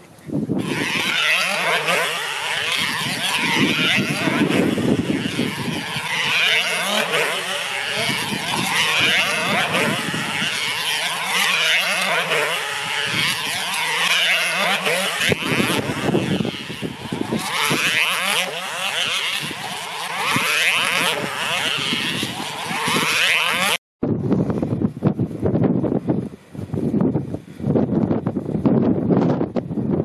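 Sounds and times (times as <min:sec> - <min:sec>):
model engine high-pitched scream: 0:00.6 - 0:23.8.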